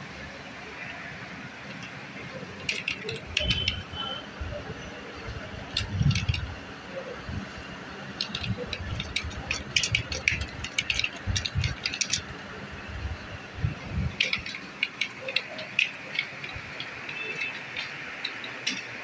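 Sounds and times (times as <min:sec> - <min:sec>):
keyboard keys clicking: 0:02.6 - 0:04.2, 0:05.5 - 0:06.5, 0:08.2 - 0:12.3, 0:14.0 - 0:19.0.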